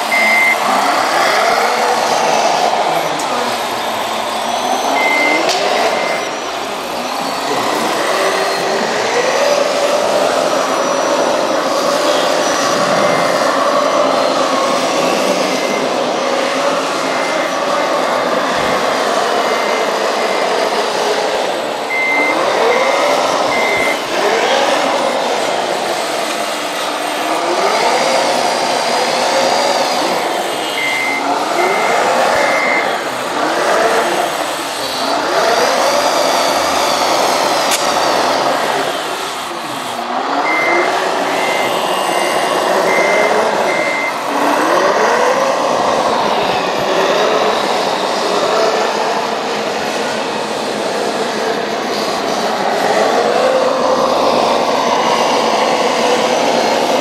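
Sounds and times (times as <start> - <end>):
reversing beeps: 0.0 - 9.8, 21.8 - 24.4, 30.6 - 33.1, 40.4 - 44.3
toy loader motor whirring: 0.0 - 50.0.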